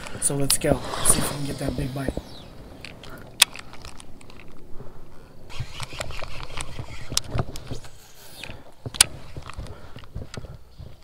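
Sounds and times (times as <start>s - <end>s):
reel clicking and rustling: 2.8s - 10.5s.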